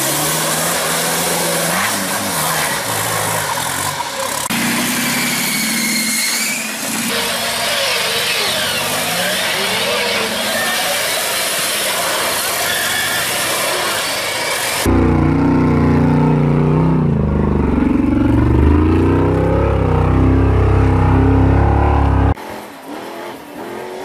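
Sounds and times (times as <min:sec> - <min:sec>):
off-road vehicle engines revving: 0:00.0 - 0:24.0.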